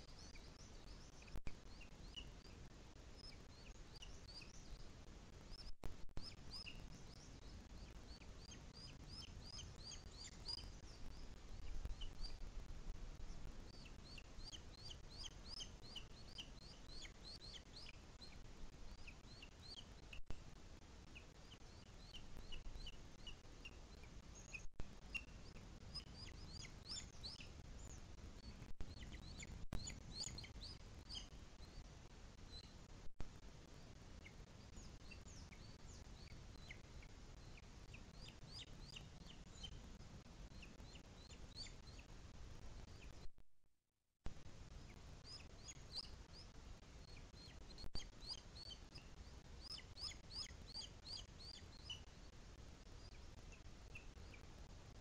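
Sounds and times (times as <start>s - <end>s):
bird chirps: 0.0s - 4.9s, 5.5s - 12.5s, 13.2s - 20.2s, 21.1s - 31.9s, 34.2s - 39.8s, 40.5s - 42.1s, 44.8s - 54.5s
faint low rumble: 0.0s - 43.4s.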